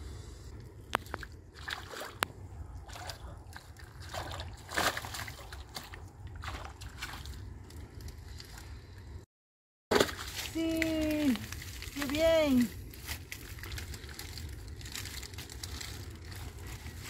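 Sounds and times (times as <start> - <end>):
steady low rumble: 0.0 - 9.3, 10.2 - 17.0
water sloshing and splashing: 0.8 - 8.7, 9.9 - 17.0.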